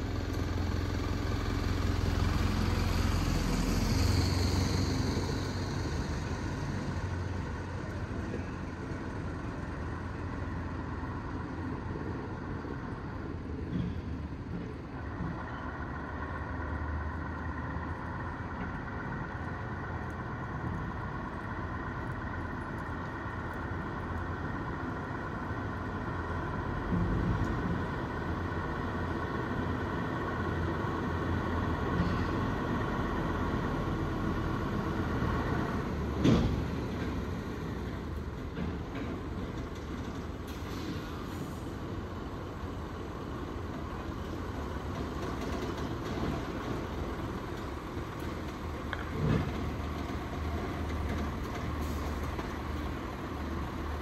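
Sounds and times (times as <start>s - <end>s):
steady engine hum: 0.0s - 54.0s.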